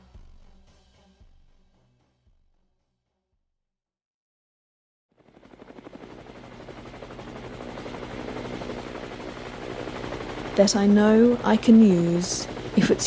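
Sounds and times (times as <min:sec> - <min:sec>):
aircraft fluttering drone: 0:05.2 - 0:13.0
aircraft low hum: 0:05.2 - 0:13.0.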